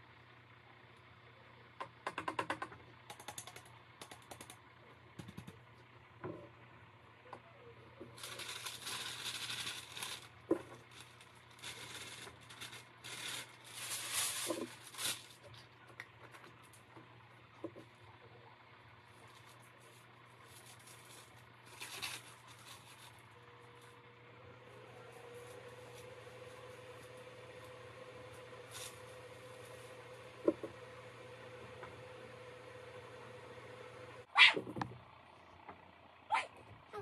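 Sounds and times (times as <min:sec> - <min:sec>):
paper crinkling and rustling: 0:08.0 - 0:15.7, 0:19.2 - 0:23.9.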